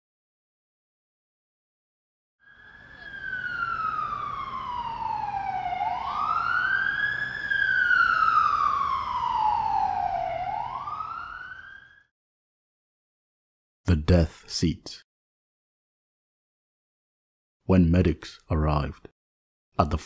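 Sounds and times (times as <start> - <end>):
ambulance siren wailing: 2.4 - 12.1.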